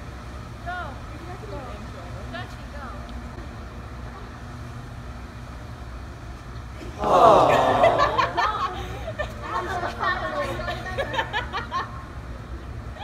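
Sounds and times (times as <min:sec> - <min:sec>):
person shrieking: 0:07.0 - 0:08.1.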